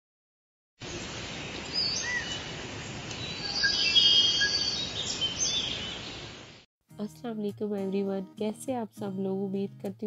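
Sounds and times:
birds whistling and trilling: 0:01.7 - 0:02.5, 0:03.2 - 0:06.3.

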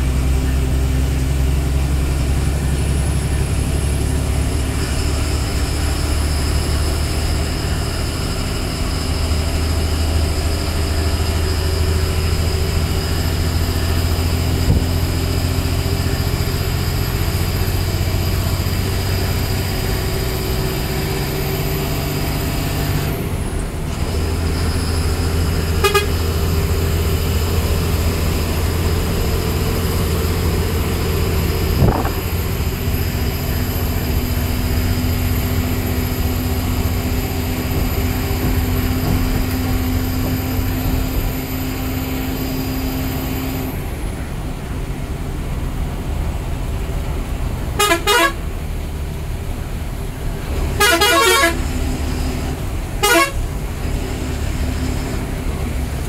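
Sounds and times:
bus diesel engine running: 0:00.0 - 0:56.0
horn blasts: 0:25.6 - 0:26.7, 0:47.8 - 0:48.4, 0:50.7 - 0:51.8, 0:53.0 - 0:53.5.

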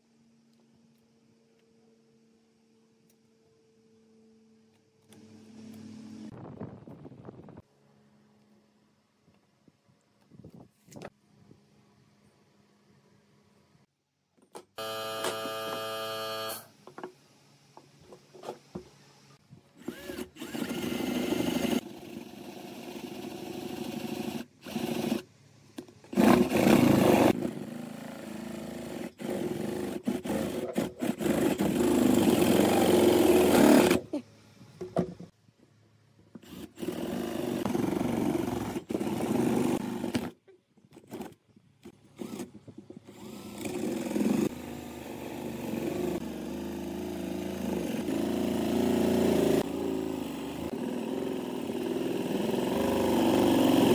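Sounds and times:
electric drill boring into wood: 0:14.8 - 0:16.6, 0:19.8 - 0:25.2.

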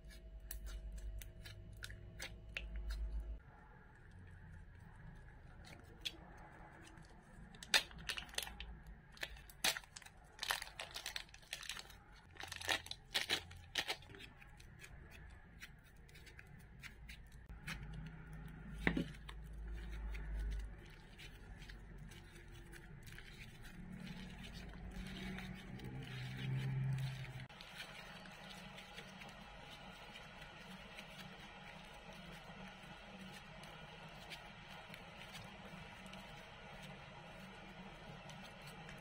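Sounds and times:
plastic bag crinkling: 0:07.3 - 0:14.1.

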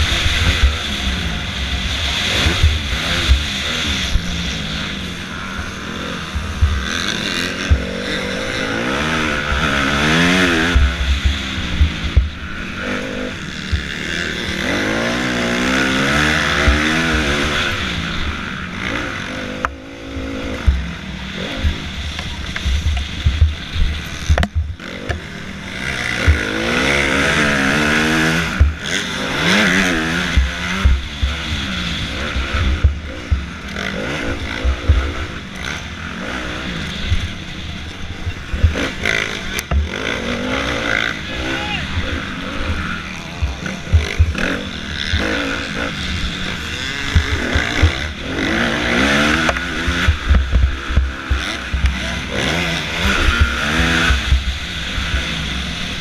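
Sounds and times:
dirt bike engine revving: 0:00.0 - 0:56.0
low thumps and knocks: 0:21.6 - 0:25.2, 0:30.4 - 0:31.4, 0:43.4 - 0:44.4, 0:49.4 - 0:52.0.

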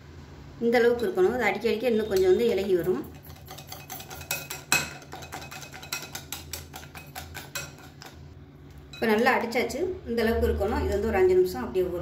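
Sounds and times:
whisk clicking against glass bowl: 0:02.1 - 0:08.2.

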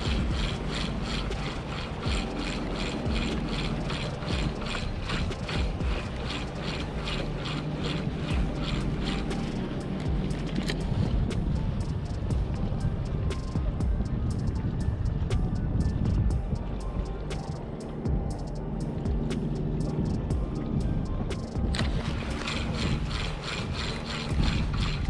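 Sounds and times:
fishing reel clicking: 0:00.0 - 0:12.2, 0:21.4 - 0:25.0
low rumble: 0:00.0 - 0:25.0.

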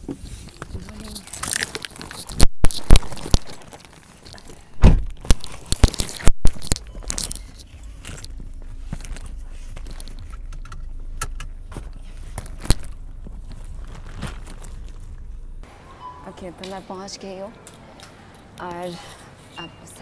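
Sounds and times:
car cabin rumble: 0:06.4 - 0:15.7.

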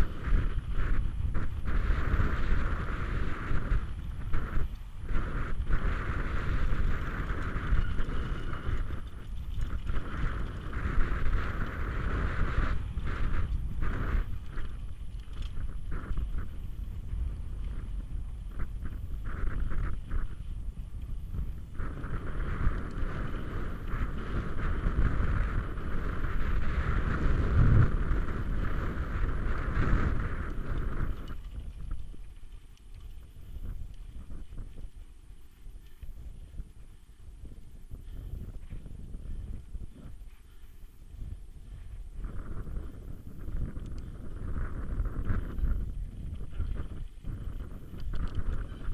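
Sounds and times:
bike freewheel buzz: 0:00.0 - 0:31.9
wind rushing over microphone: 0:00.0 - 0:48.9.

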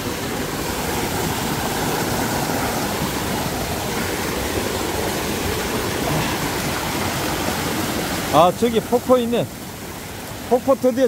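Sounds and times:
stream rushing over rocks: 0:00.0 - 0:11.0.

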